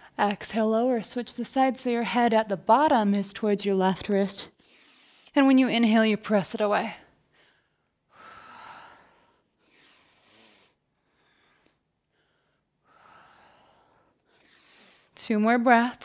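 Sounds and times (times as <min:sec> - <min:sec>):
woman breathing: 0:04.5 - 0:05.3, 0:07.2 - 0:15.2.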